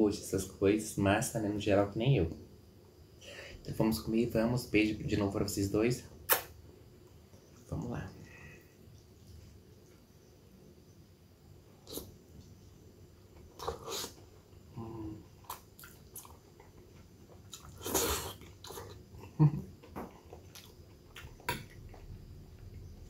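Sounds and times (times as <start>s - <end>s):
person slurping noodles: 13.6s - 14.2s, 17.7s - 18.9s.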